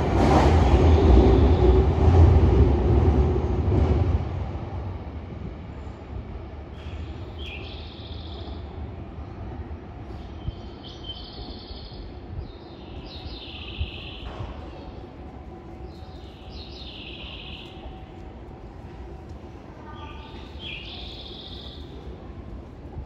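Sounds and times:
electric train rumbling away: 0.0 - 10.8.

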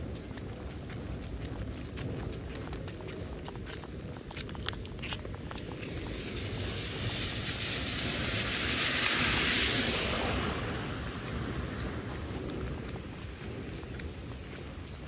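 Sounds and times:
tyres hissing through water: 6.2 - 10.7.

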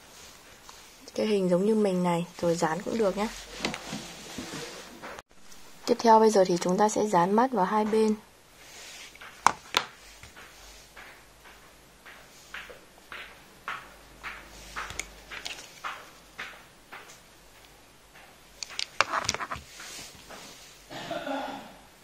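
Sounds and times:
hands rubbing yarn bag: 2.4 - 5.2, 18.7 - 20.8
taps and clicks: 9.2 - 19.6.

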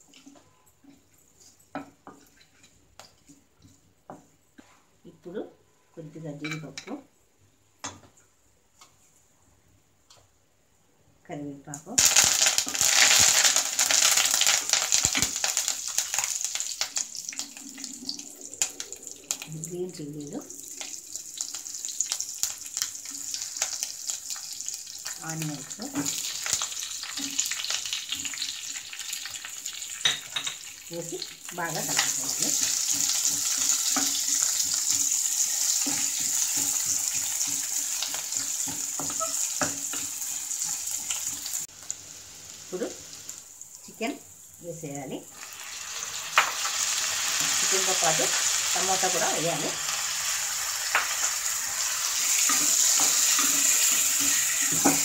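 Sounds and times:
leaves sizzling in hot oil: 11.9 - 55.0
metal spoon scraping a pan: 31.8 - 41.4, 52.0 - 55.0.

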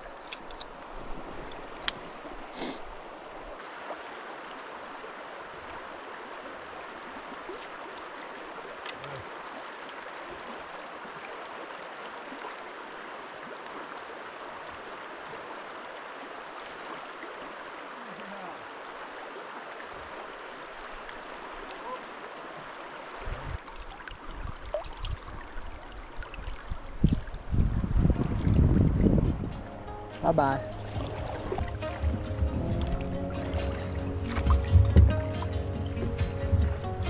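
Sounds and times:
flowing river water: 0.0 - 37.0.

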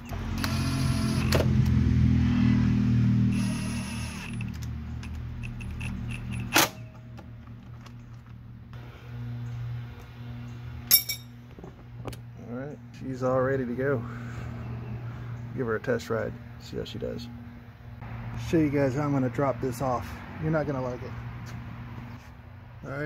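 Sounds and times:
cordless drill whirring: 0.2 - 1.4, 3.3 - 4.5.

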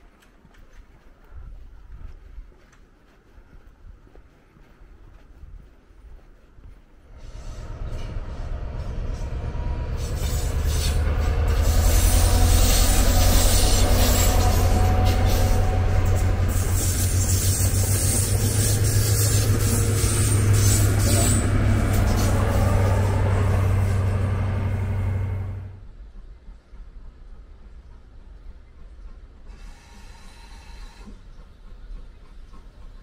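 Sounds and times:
wheel and rail noise: 0.0 - 33.0
diesel train passing: 6.9 - 33.0.

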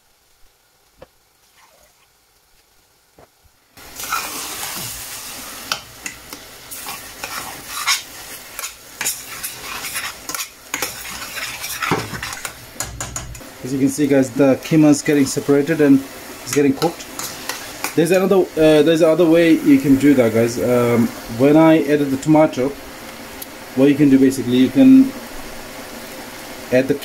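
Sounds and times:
meat sizzling in a saucepan: 0.0 - 27.0
metal spoon scraping a pan: 5.7 - 13.4, 16.5 - 18.0.

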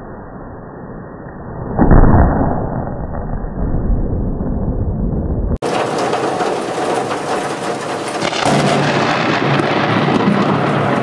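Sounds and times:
heavy rain pouring: 5.6 - 11.0.

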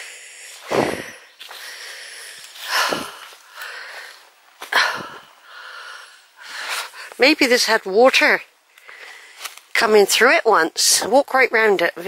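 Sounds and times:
person breathing heavily: 0.0 - 7.2, 8.7 - 9.6.

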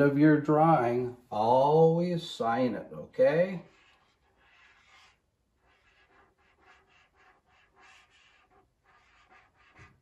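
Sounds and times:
marker scratching on paper: 3.5 - 10.0.

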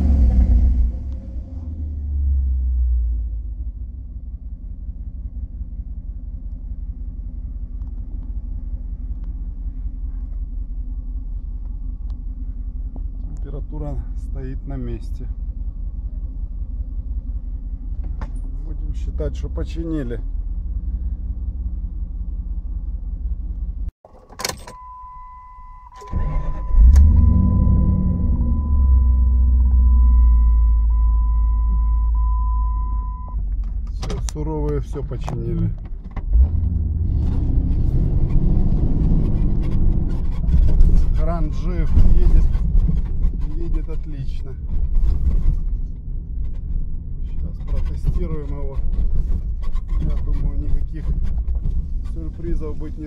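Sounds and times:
car engine idling: 3.4 - 24.2.

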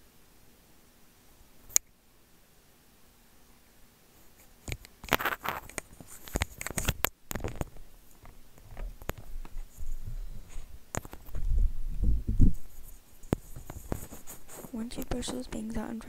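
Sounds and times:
comb scratching through hair: 4.2 - 7.7, 12.5 - 16.0
low bumps: 8.8 - 12.8.

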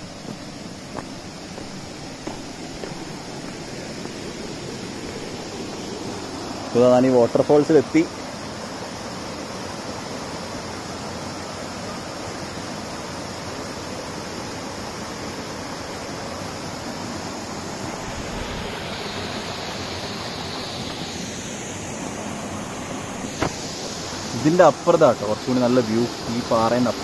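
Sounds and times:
waterfall rushing: 0.0 - 8.6, 17.2 - 27.0.

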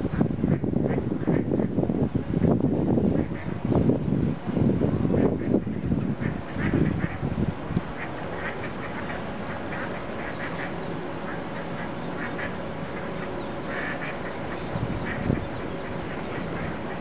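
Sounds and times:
steady background noise: 0.0 - 17.0
duck quacks and duckling peeps: 5.0 - 17.0.

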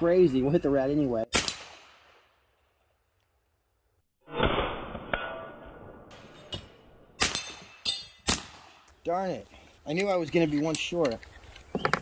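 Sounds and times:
air pistol shots: 1.3 - 2.2, 7.2 - 8.9
sharp cracks: 1.3 - 2.4, 7.2 - 9.0.

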